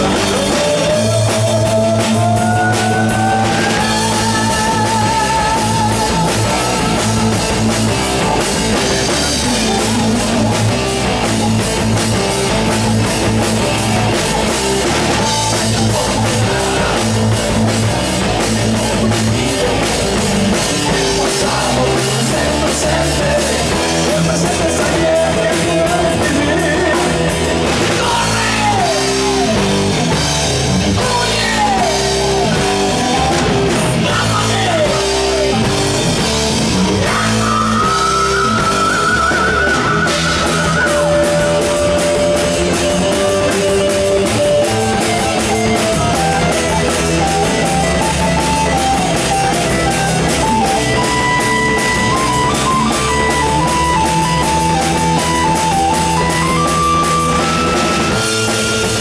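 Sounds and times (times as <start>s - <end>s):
bass: 0.0s - 59.0s
drum kit: 0.0s - 59.0s
electric guitar: 0.0s - 59.0s
keyboards: 0.0s - 59.0s.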